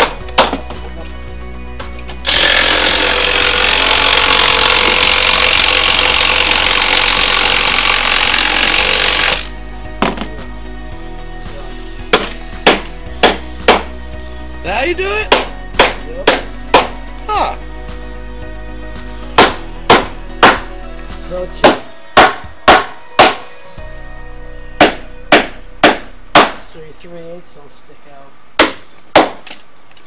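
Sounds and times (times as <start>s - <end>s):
hammer driving nails into wood: 0.0s - 0.7s, 12.2s - 14.0s, 15.3s - 17.0s, 19.4s - 20.7s, 21.6s - 23.5s, 24.8s - 26.6s, 28.6s - 29.6s.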